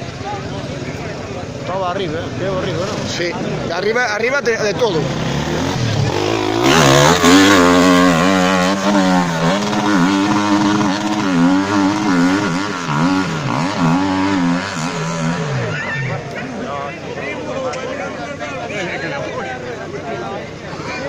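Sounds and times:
dirt bike engine revving: 0.0 - 16.6.

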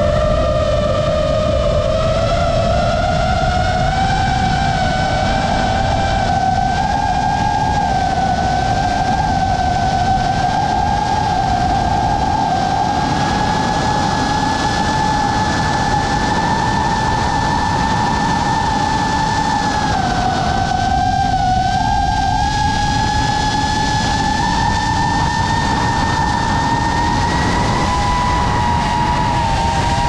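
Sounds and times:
drone motors whining: 0.0 - 30.0
rush of air: 21.3 - 30.0.

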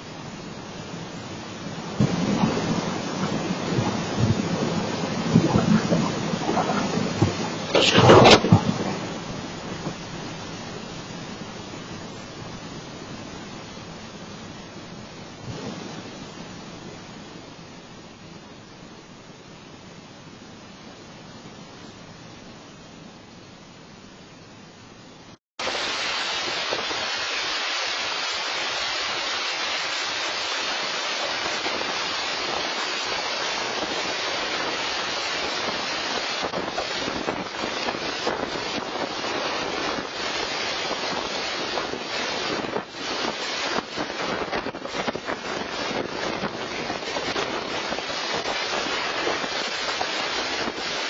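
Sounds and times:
tornado wind: 0.0 - 23.1, 25.6 - 51.0
driving rain: 0.0 - 51.0
wind buffeting microphone: 1.0 - 13.2, 30.6 - 51.0.

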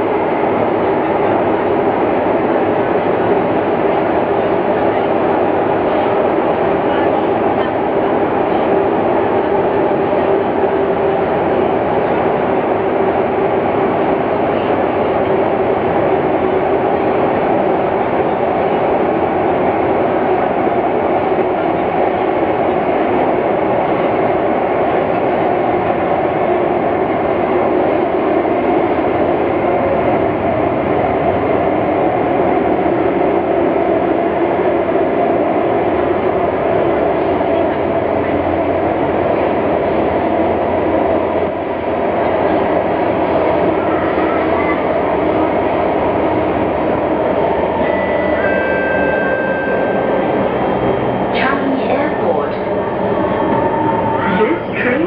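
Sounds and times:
train wheels rumbling on rail: 0.0 - 55.0
humming tones: 47.7 - 50.7.

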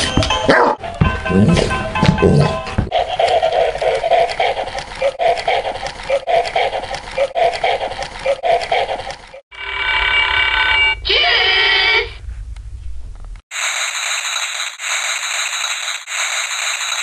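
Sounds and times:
toy electronic pulsing pattern: 13.6 - 17.0.

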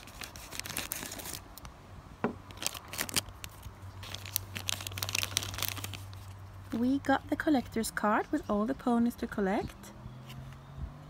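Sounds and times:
plastic foil wrapper crinkling: 0.0 - 1.7, 2.5 - 6.8.

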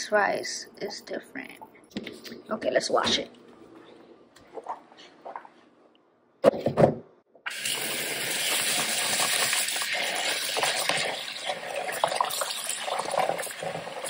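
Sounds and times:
rice being rinsed by hand: 7.5 - 14.0
tap water running into bowl: 7.5 - 14.0.

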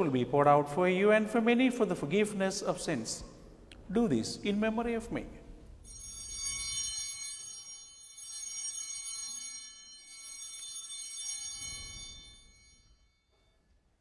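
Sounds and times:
altar bells ringing: 5.8 - 14.0.

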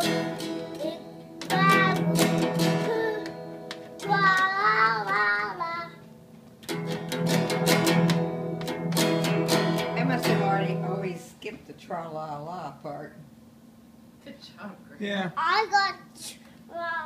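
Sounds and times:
child strumming acoustic guitar: 0.0 - 6.0, 6.6 - 11.2
child singing loudly: 0.8 - 3.4, 4.0 - 6.0.

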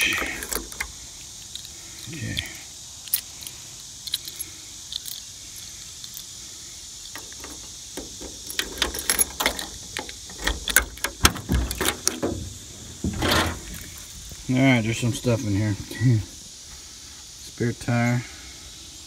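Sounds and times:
keys jangling in lock: 0.0 - 0.9, 3.1 - 5.3, 7.1 - 12.3
trunk latch clunk: 0.0 - 0.9, 7.2 - 13.8.

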